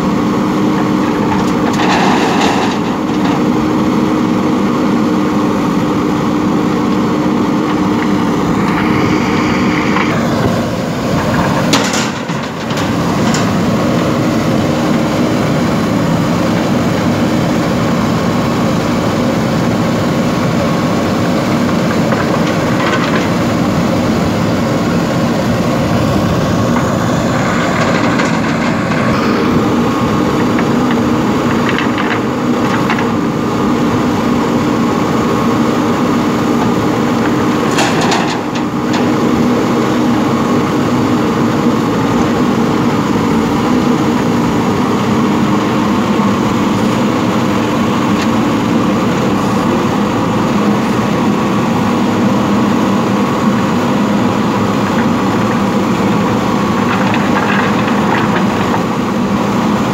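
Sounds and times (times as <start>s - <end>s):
diesel engine running: 0.0s - 59.9s
bucket and stone clatter: 1.2s - 3.5s, 11.2s - 13.6s, 30.4s - 33.2s, 37.6s - 39.2s, 54.8s - 59.0s.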